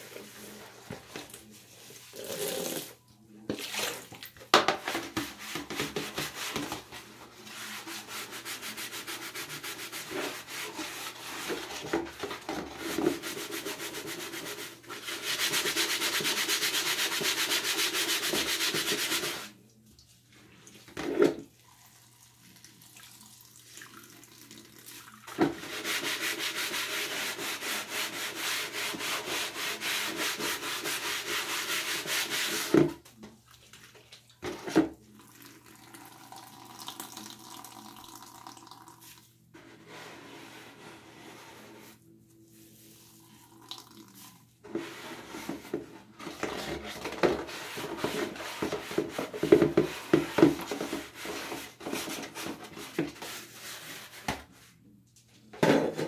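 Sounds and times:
scrubbing a wet plastic tub: 0.0 - 2.9, 3.5 - 19.6, 25.3 - 34.8, 44.6 - 54.7.

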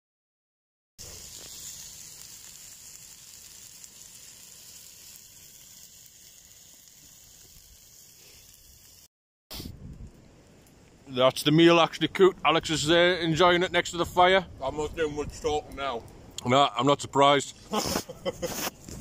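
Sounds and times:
meat sizzling in pan: 1.0 - 9.1.

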